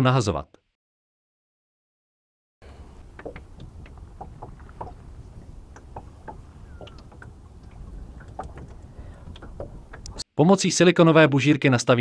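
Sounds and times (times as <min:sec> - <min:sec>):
wind and water rumble: 0:02.6 - 0:10.2.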